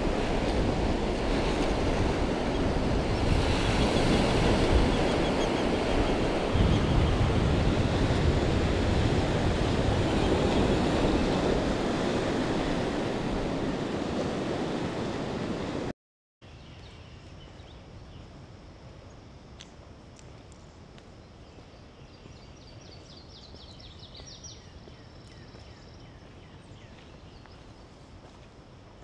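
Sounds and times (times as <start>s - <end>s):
ocean surf washing onto beach: 0.0s - 15.9s.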